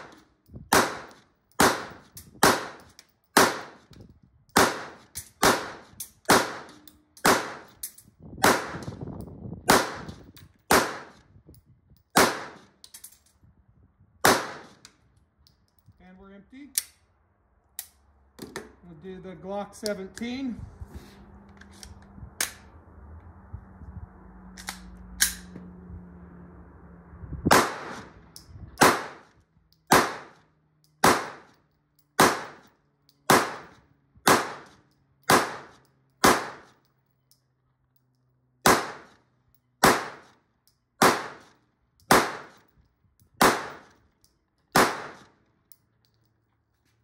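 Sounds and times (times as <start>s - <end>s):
pistol shots: 0.0s - 3.8s, 4.6s - 7.8s, 8.4s - 8.9s, 9.7s - 10.1s, 10.7s - 11.2s, 12.2s - 12.6s, 14.2s - 14.8s, 27.5s - 28.1s, 28.8s - 29.3s, 29.9s - 30.4s, 31.0s - 31.5s, 32.2s - 32.6s, 33.3s - 36.7s, 38.6s - 39.2s, 39.8s - 40.3s, 41.0s - 41.5s, 42.1s - 42.6s, 43.4s - 43.9s, 44.7s - 45.4s
pistol handling clicks: 16.7s - 17.0s, 17.7s - 18.0s, 24.6s - 25.5s.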